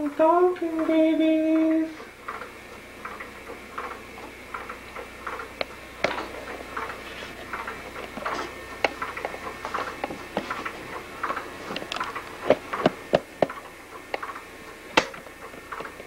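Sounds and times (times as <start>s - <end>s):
baby swing ticking: 0.0s - 16.0s.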